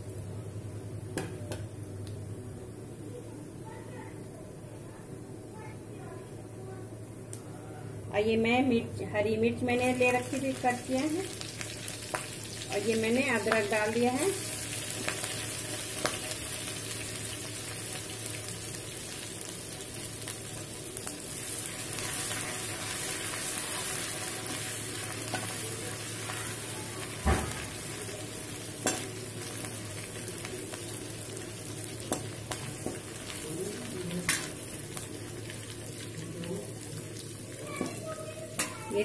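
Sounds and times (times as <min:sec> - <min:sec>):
food sizzling in hot fat: 0:09.6 - 0:39.0.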